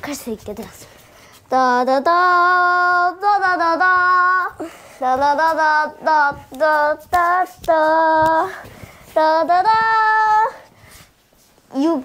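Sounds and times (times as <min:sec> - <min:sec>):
child singing wordless tune: 0:00.0 - 0:10.7, 0:11.7 - 0:12.0.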